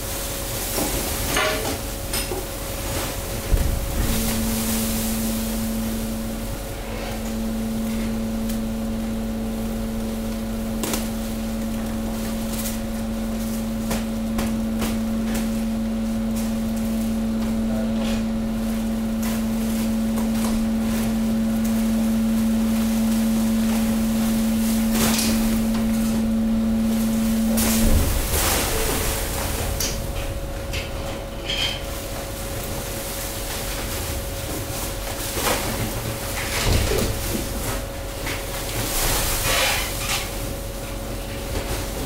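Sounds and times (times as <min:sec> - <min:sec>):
hydraulic pump hum: 0:00.0 - 0:41.5
cracks and snaps of crushed waste: 0:10.3 - 0:15.6.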